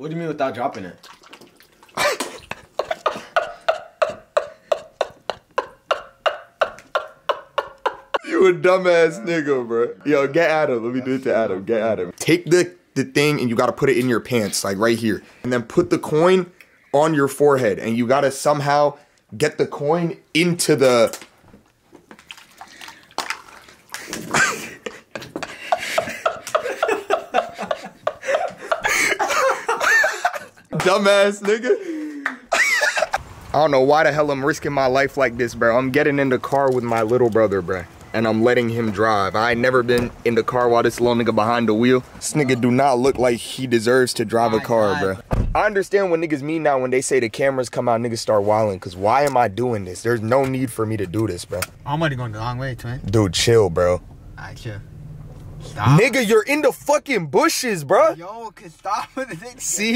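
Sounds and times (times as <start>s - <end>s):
person laughing hard: 2.0s - 9.4s, 24.2s - 30.7s, 31.6s - 33.2s
quick rhythmic laughter: 24.0s - 30.7s, 32.0s - 33.2s.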